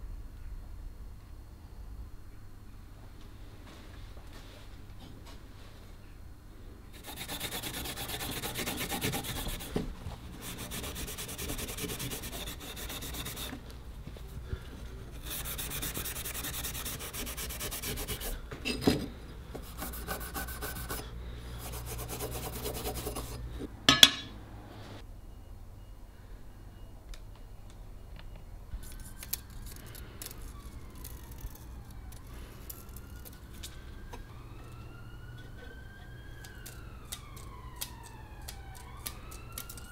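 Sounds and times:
metal blade rasping on abrasive: 0:06.9 - 0:09.8, 0:10.4 - 0:13.6, 0:15.1 - 0:18.4
sharp metal knocks: 0:23.9 - 0:24.4.

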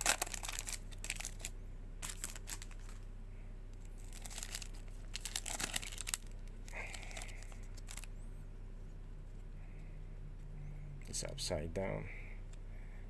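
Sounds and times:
foil wrapper crinkling: 0:00.0 - 0:03.0, 0:04.0 - 0:08.1.

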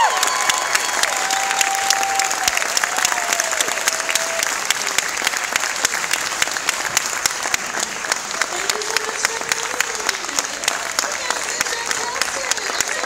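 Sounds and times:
high call from crowd: 0:00.0 - 0:05.1
audience applauding: 0:00.0 - 0:13.0.

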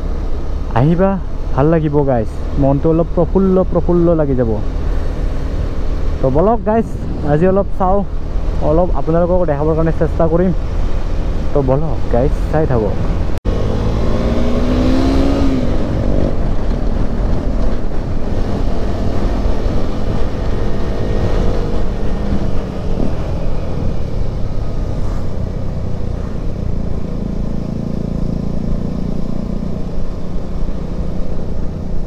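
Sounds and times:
wind rush on microphone: 0:02.2 - 0:32.0
motorcycle engine: 0:12.9 - 0:32.0.

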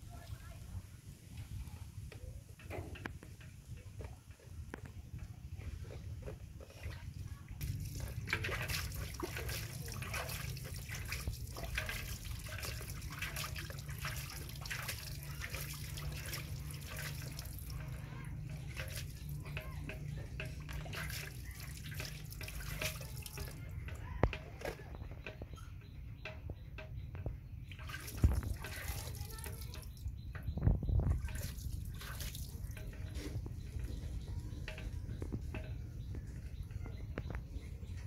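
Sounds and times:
water splashing and dripping: 0:05.8 - 0:38.0.

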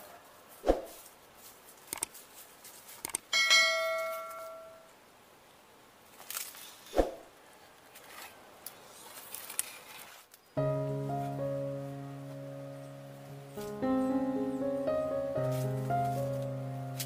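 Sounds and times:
faint outdoor background: 0:00.0 - 0:17.0
sharp mouse clicks: 0:01.9 - 0:02.2, 0:03.0 - 0:03.3
bell chime: 0:03.4 - 0:04.9.

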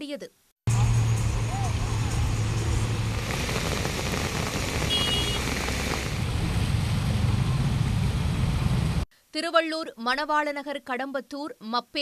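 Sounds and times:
bus engines running: 0:00.7 - 0:09.0.

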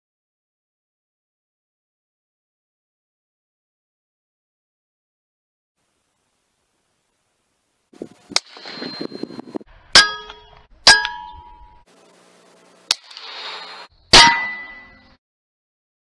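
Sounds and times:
metallic ringing: 0:08.4 - 0:11.9, 0:14.1 - 0:15.2.

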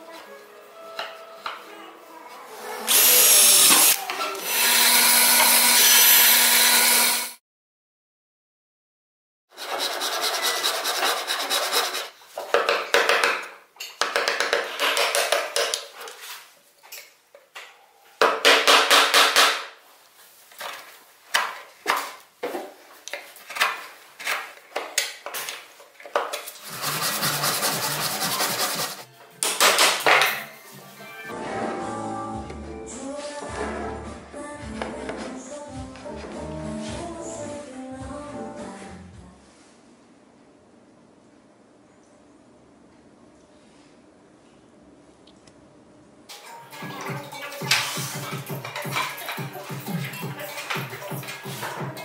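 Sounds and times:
chisel and saw rasping wood: 0:09.6 - 0:12.1, 0:26.6 - 0:29.1.

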